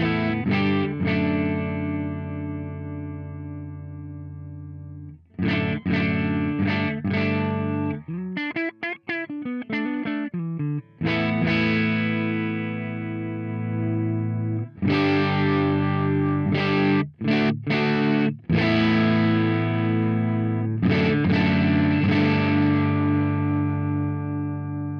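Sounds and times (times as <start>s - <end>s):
overdriven electric guitar: 0.0s - 24.9s.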